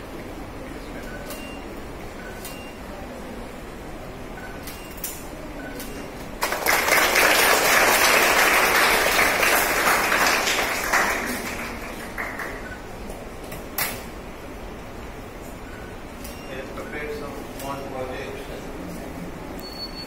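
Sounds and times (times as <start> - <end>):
small group applauding: 6.4 - 13.0.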